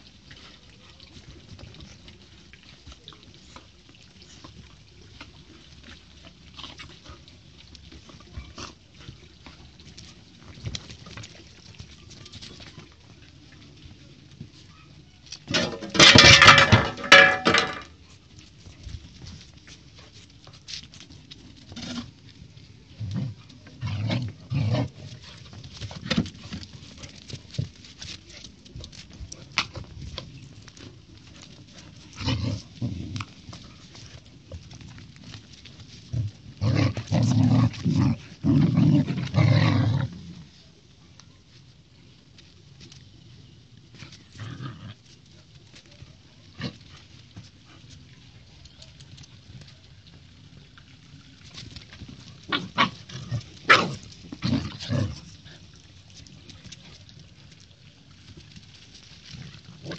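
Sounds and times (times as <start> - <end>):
puppies growling and snarling: 23.0 - 27.7, 29.4 - 40.5, 44.0 - 45.3, 51.5 - 56.8.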